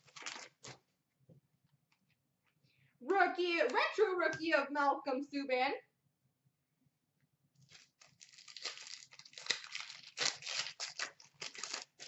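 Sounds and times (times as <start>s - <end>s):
card pack wrapper tearing and crinkling: 0.0s - 0.8s, 7.6s - 12.0s.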